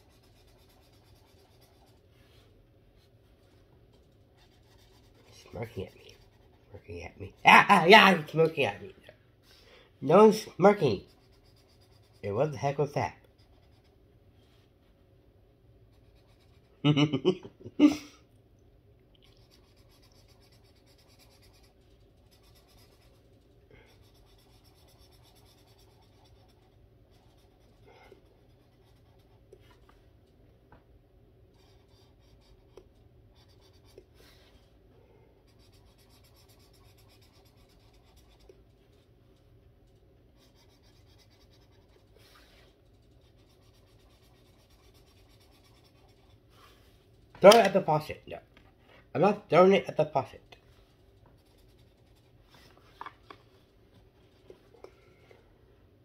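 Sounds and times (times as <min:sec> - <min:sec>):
felt-tip marker rubbing on paper: 0:00.0 - 0:02.4, 0:10.1 - 0:14.0, 0:19.5 - 0:29.5, 0:35.4 - 0:38.7, 0:40.3 - 0:46.9, 0:51.3 - 0:52.5.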